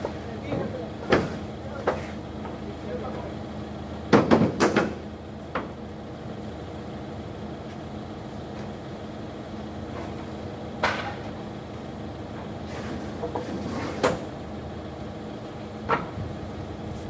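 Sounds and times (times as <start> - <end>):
vehicle engine idling: 0.0 - 17.0
loud clattering engine knocks: 4.1 - 5.8.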